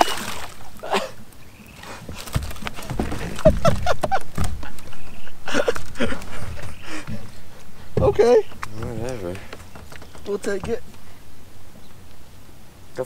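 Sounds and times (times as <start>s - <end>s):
low thumps: 2.0s - 12.2s.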